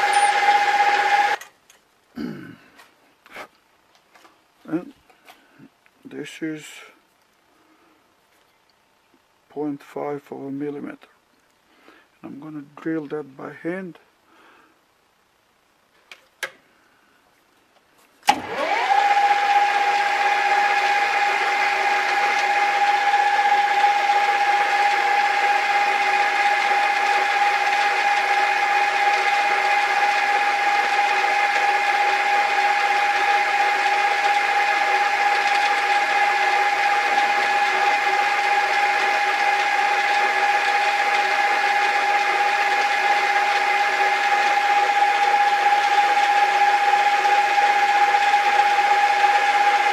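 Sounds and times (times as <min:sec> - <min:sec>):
metal lathe whining: 0:00.0 - 0:01.4, 0:18.3 - 0:49.9.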